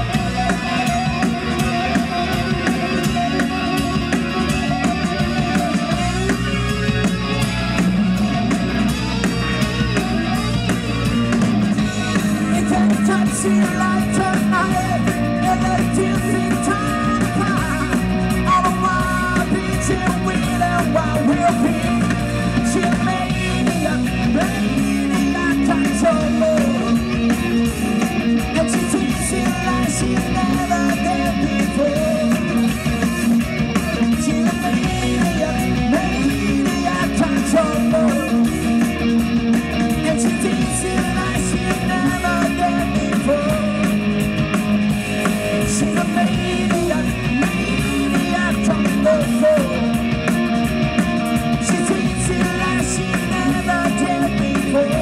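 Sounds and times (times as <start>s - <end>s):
drums and cymbals: 0.0s - 55.0s
electric guitar: 0.0s - 55.0s
lead singing voice: 11.8s - 27.1s, 39.9s - 44.0s, 45.4s - 50.1s, 51.4s - 55.0s.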